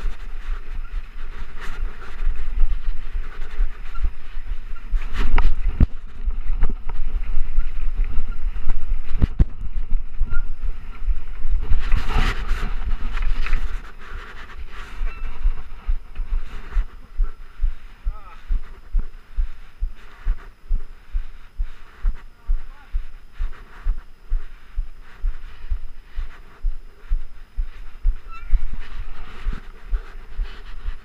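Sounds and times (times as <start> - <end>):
wind buffeting microphone: 0.0 - 20.8.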